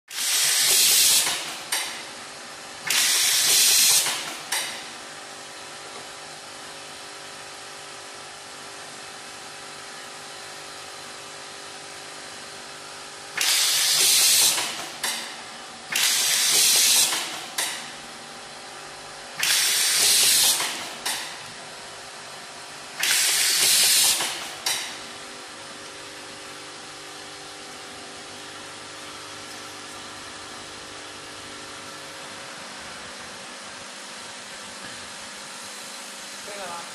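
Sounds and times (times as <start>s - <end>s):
short air puffs: 0.1s - 1.6s, 13.4s - 15.3s, 15.9s - 17.8s, 19.4s - 21.4s, 23.0s - 24.9s
tying machine hiss: 0.1s - 2.0s, 2.8s - 4.8s, 13.3s - 17.9s, 19.4s - 21.4s, 23.0s - 25.0s.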